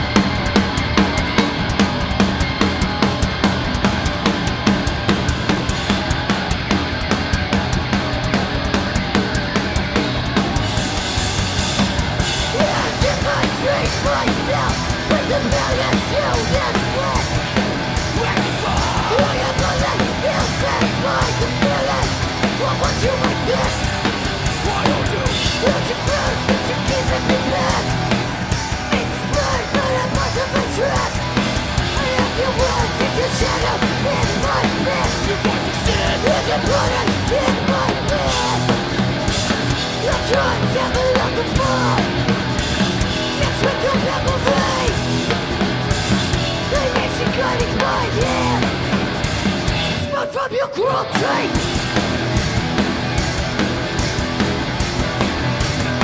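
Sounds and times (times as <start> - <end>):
drum kit: 0.0 - 56.0
electric guitar: 0.0 - 56.0
punk band playing live: 0.0 - 56.0
shouted vocal: 18.1 - 23.9, 31.9 - 38.8, 46.7 - 48.8, 50.0 - 51.7.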